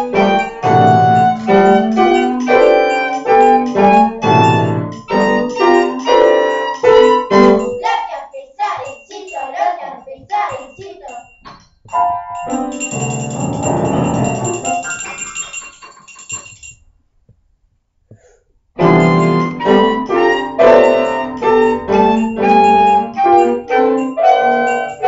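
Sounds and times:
small chamber ensemble playing: 0.0s - 7.6s, 18.8s - 24.7s
piano: 0.0s - 7.8s, 11.4s - 16.2s, 18.8s - 25.0s.

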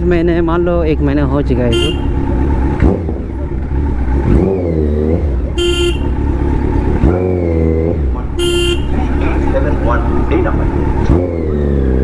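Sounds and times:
motorcycle engine running: 0.0s - 12.0s
vehicle horn honking: 1.6s - 2.3s, 5.5s - 6.3s, 8.4s - 9.1s.

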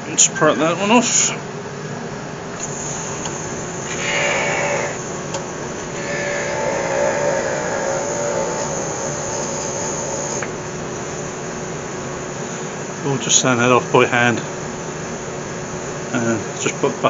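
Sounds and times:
steady lathe hum: 2.6s - 12.6s
parting tool squealing on lathe: 2.8s - 5.2s, 5.9s - 10.6s.

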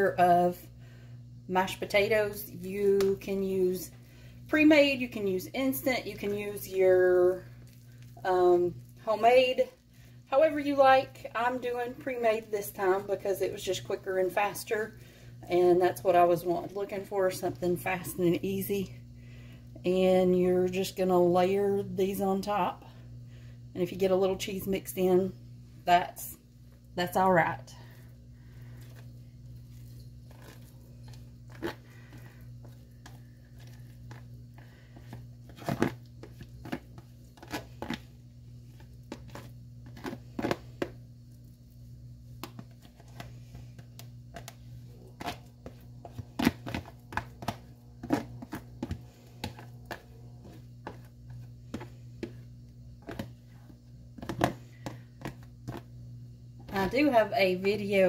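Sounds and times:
low hum: 0.0s - 58.0s
plastic crinkles: 28.6s - 38.1s.

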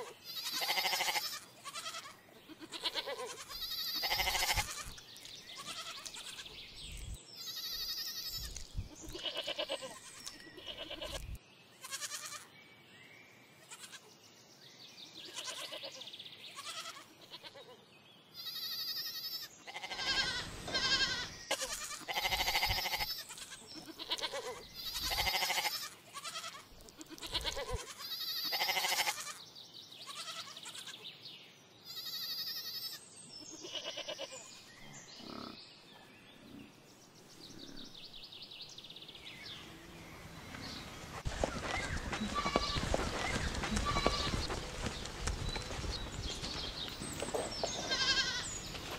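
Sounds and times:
goats bleating: 0.2s - 5.0s, 5.6s - 6.4s, 7.5s - 11.2s, 11.8s - 12.4s, 16.6s - 17.6s, 18.4s - 29.4s, 41.3s - 48.9s.

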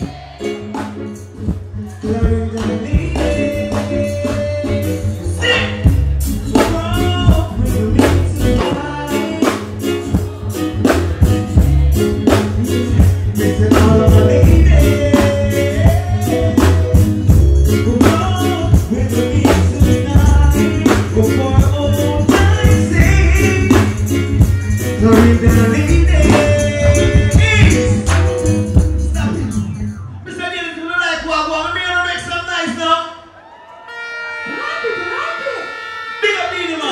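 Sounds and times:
heavy bass: 0.0s - 33.0s
loud backing track with drums: 0.0s - 33.0s
man singing into a microphone: 1.8s - 28.1s.

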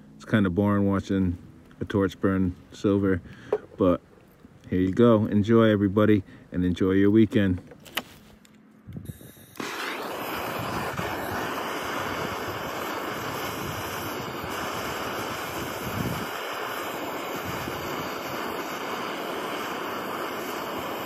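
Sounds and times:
gas torch roaring hiss: 9.0s - 21.0s.

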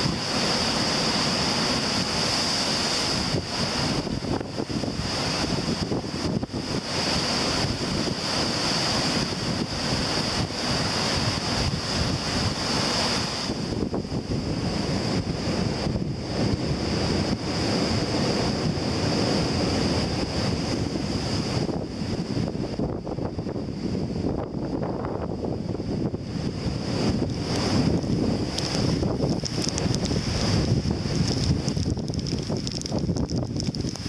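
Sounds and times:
heavy surf crashing on rocks: 0.0s - 34.0s
wind buffeting microphone: 0.0s - 34.0s.

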